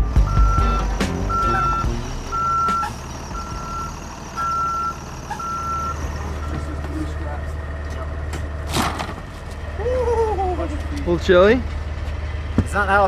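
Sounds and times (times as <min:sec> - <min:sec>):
reverse warning beeper: 0:00.0 - 0:06.7
bus engine rumble: 0:00.0 - 0:13.0.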